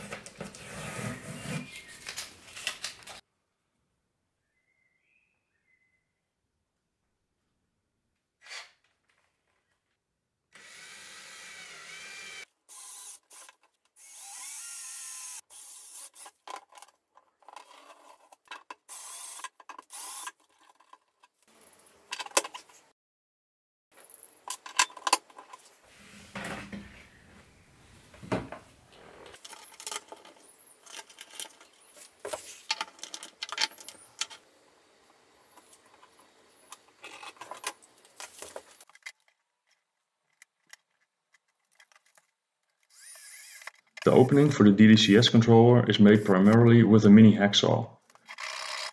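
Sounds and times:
cordless drill cutting plastic: 10.6s - 16.4s, 18.9s - 20.4s, 42.9s - 43.9s, 48.3s - 48.9s
clicks and scrapes: 16.2s - 21.5s, 29.2s - 34.4s, 35.5s - 44.2s.

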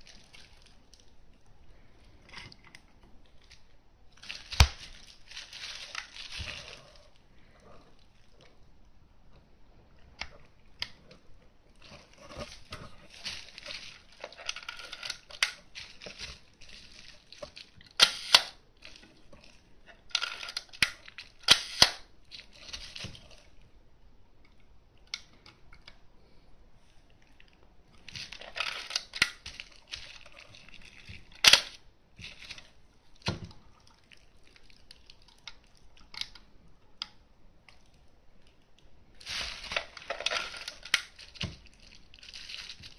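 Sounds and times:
camera handling noise: 18.0s - 18.6s, 20.2s - 22.0s
camera shutter clicks: 18.0s - 18.6s, 21.5s - 22.0s.

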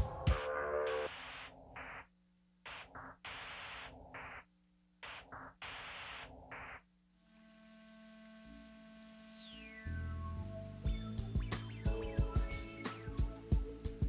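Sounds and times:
stuttering static hiss: 0.0s - 9.8s
synthesizer chord with rising tone: 7.2s - 13.8s.

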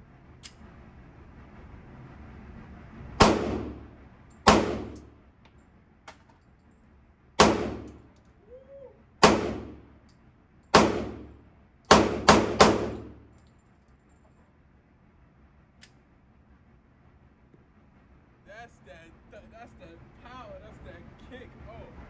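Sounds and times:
pistol shots echoing indoors: 3.2s - 5.1s, 7.4s - 8.0s, 9.2s - 10.0s, 10.7s - 13.3s.

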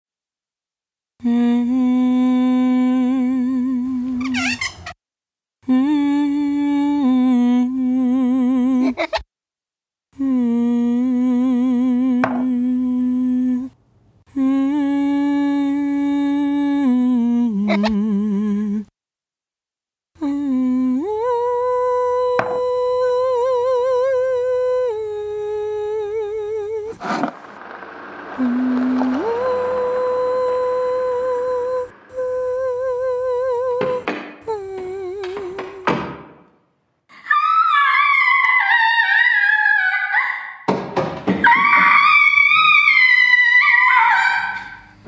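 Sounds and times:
person humming: 1.2s - 4.3s, 10.2s - 18.9s, 20.2s - 27.6s, 28.2s - 36.0s.

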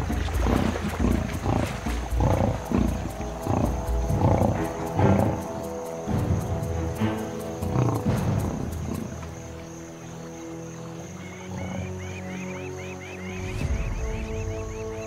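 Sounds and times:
lionesses growling: 0.0s - 10.3s, 11.2s - 12.2s
background music with sustained notes: 0.0s - 15.0s.

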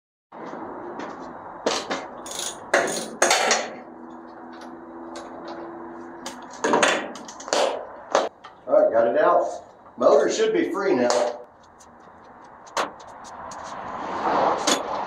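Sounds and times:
sharp metal knocks: 1.7s - 3.8s, 6.2s - 8.6s.

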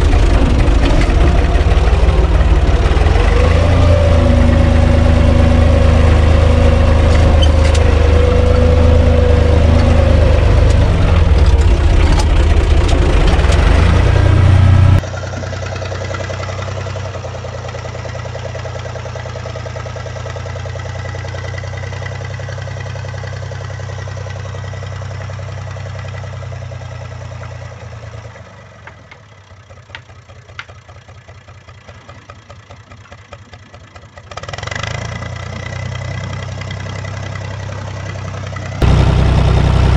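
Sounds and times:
engine whine: 0.0s - 22.5s, 34.3s - 39.9s
tractor diesel engine running: 0.0s - 39.9s.

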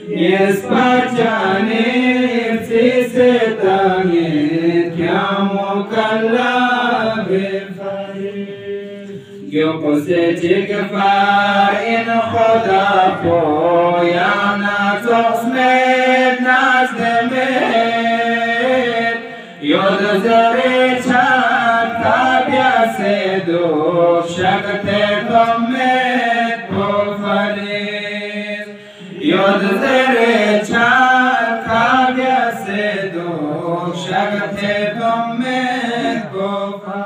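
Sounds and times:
man chanting devotional poem: 0.0s - 37.0s.

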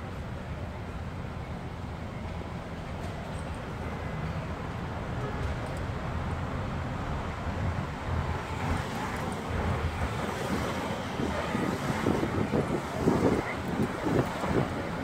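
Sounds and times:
traffic passing close: 0.0s - 15.0s.

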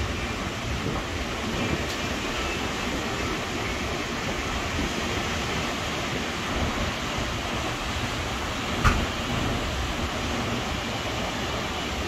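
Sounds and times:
wind rumbling on microphone: 0.0s - 12.0s
brief knock: 8.8s - 9.1s.

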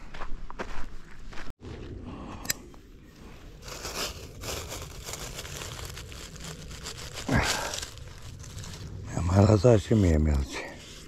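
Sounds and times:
close rustling and crinkling: 3.6s - 9.6s.

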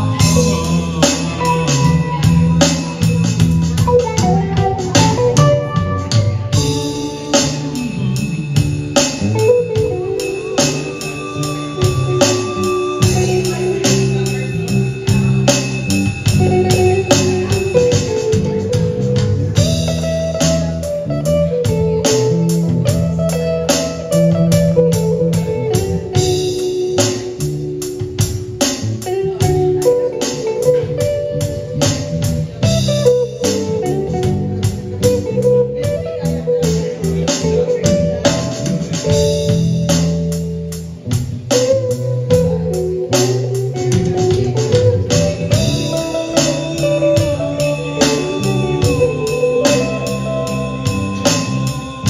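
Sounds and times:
drum kit beat: 0.0s - 52.0s
electric bass: 0.0s - 52.0s
electric guitar melody: 0.0s - 52.0s.

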